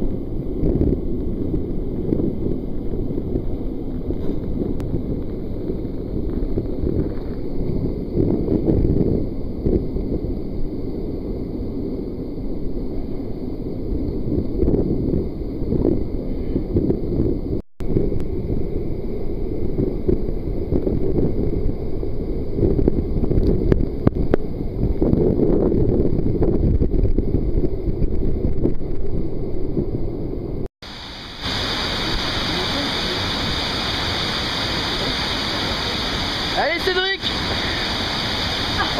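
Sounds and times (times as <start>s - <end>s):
wind on microphone: 0.0s - 38.9s
waterfall roaring: 30.8s - 38.9s.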